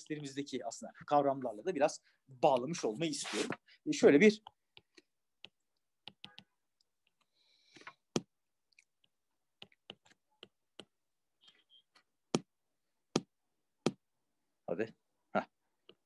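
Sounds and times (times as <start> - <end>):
stylus tapping on tablet screen: 4.4 - 14.1.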